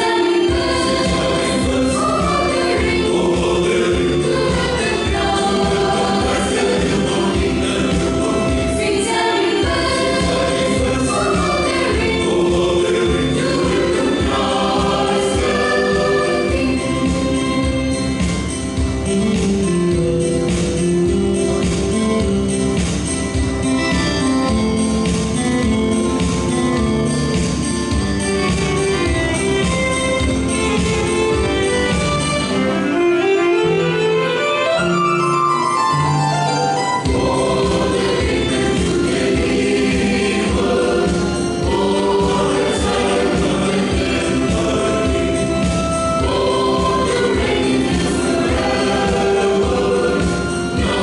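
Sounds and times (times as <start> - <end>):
mixed choir singing in parts: 0.0 - 18.7, 37.0 - 51.0
light instrumental backing: 0.0 - 51.0.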